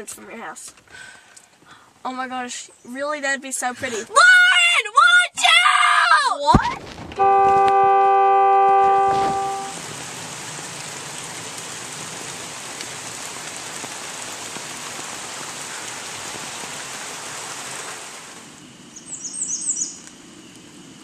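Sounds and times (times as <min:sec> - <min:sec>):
rain falling: 0:06.4 - 0:21.0
car horn blaring: 0:07.2 - 0:09.8.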